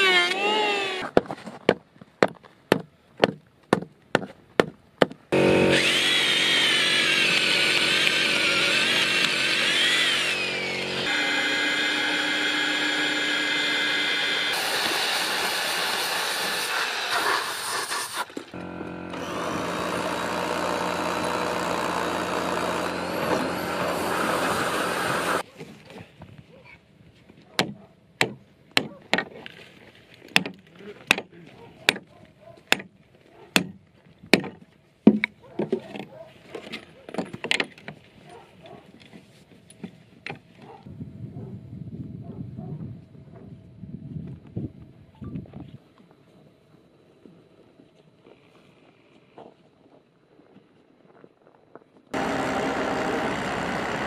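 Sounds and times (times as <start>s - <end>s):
electric drill boring timber: 0.0s - 1.0s, 5.4s - 25.4s, 52.2s - 54.0s.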